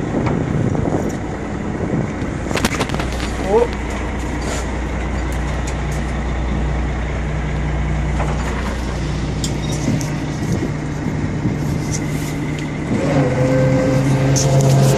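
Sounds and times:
boat engine droning: 0:00.0 - 0:14.9.

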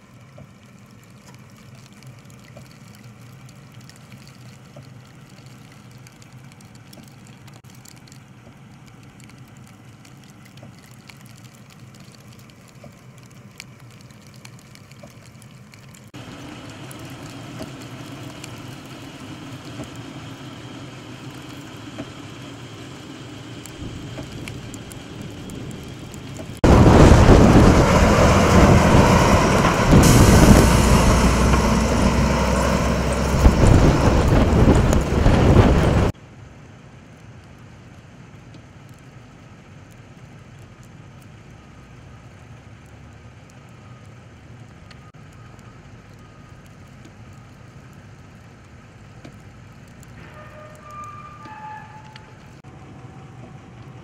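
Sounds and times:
quiet steady vehicle sound: 0:00.0 - 0:54.0
snowplow truck passing: 0:16.2 - 0:36.1, 0:49.5 - 0:54.0.

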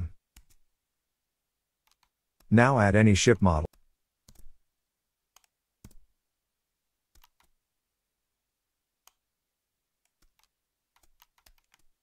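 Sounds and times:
mouse and keyboard clicks: 0:00.3 - 0:00.7, 0:01.8 - 0:02.5, 0:03.7 - 0:04.6, 0:05.3 - 0:06.1, 0:07.1 - 0:07.6, 0:09.0 - 0:09.2, 0:10.0 - 0:12.0.

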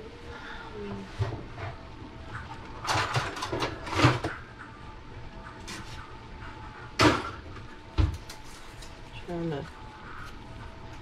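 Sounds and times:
kitchen items knocking and rattling: 0:01.2 - 0:04.5, 0:06.9 - 0:08.4.

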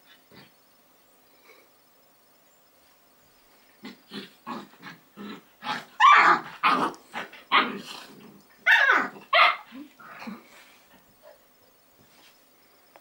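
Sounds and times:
dogs play growling and barking: 0:00.0 - 0:00.6, 0:03.8 - 0:11.4.

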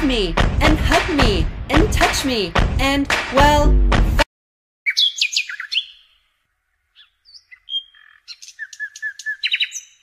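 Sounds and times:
birds chirping: 0:04.9 - 0:10.0.

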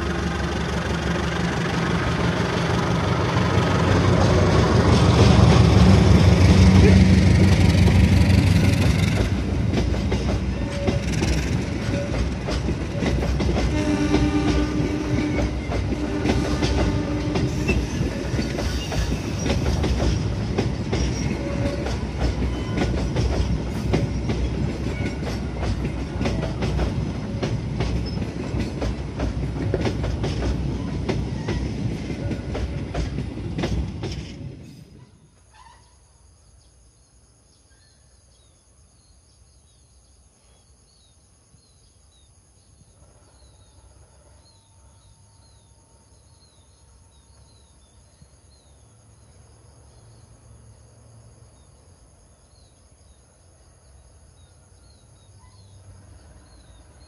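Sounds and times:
train wheels clattering over rail joints: 0:00.0 - 0:35.0
diesel locomotive engine: 0:00.0 - 0:36.0, 0:42.7 - 0:57.0
train horn: 0:10.5 - 0:18.9, 0:21.3 - 0:22.9.

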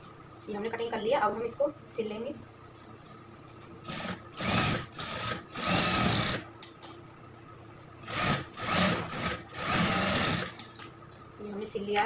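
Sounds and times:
sewing machine stitching: 0:08.0 - 0:10.6.

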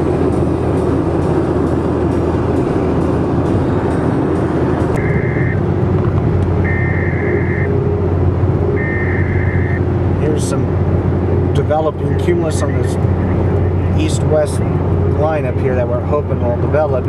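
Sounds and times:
car road and engine noise: 0:00.0 - 0:17.0
two-note electronic tone: 0:05.0 - 0:05.8, 0:06.6 - 0:08.0, 0:08.6 - 0:09.8.

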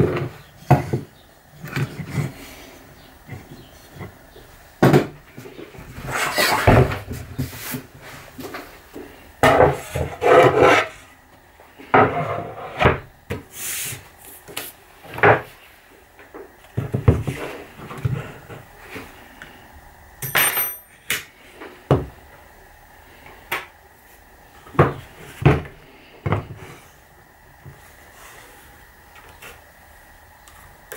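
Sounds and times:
wood scraping: 0:05.9 - 0:08.2, 0:09.4 - 0:11.0.

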